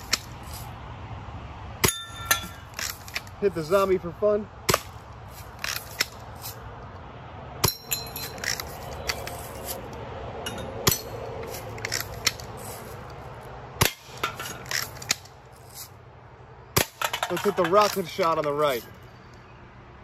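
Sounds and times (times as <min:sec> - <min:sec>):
metallic ring of target: 0:01.8 - 0:02.7, 0:07.6 - 0:08.4, 0:10.4 - 0:11.3.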